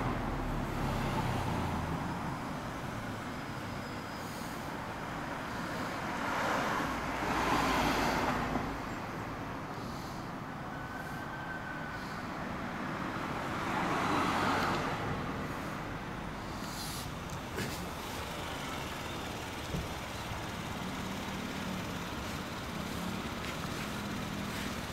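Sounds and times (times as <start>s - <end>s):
steady street hum: 0.0s - 24.9s
vehicles passing: 0.0s - 24.9s.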